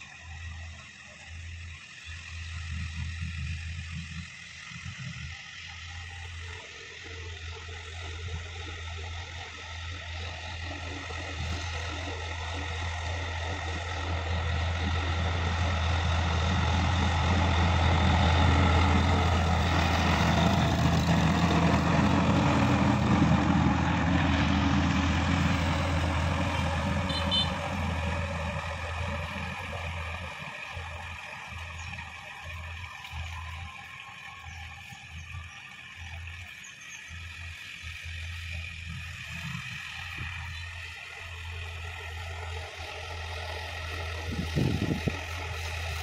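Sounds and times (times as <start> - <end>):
tractor diesel engine running: 0.0 - 46.0
rotary tiller churning soil: 2.8 - 46.0.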